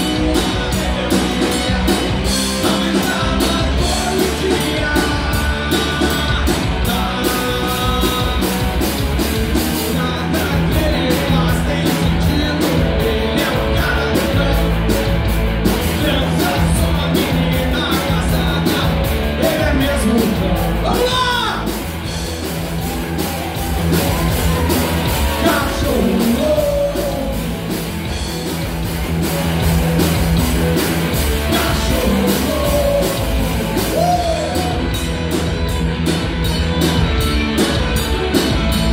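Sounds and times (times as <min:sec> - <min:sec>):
live rock band playing: 0:00.0 - 0:38.9
person singing and yelling: 0:16.0 - 0:21.8, 0:22.9 - 0:27.7, 0:31.4 - 0:35.0.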